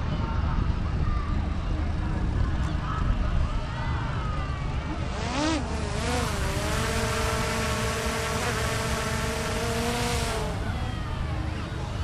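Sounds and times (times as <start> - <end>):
drone propeller whine: 4.8 - 12.0.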